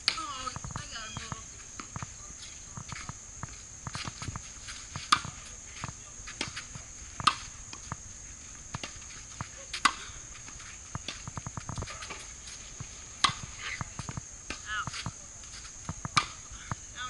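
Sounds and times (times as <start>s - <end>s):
tennis ball hit by racket: 6.4s - 8.0s, 13.2s - 13.9s, 16.0s - 16.4s.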